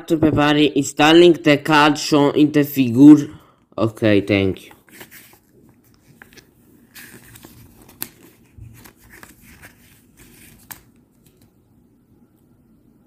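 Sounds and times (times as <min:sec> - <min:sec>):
paper pages rustling: 0:04.7 - 0:11.6.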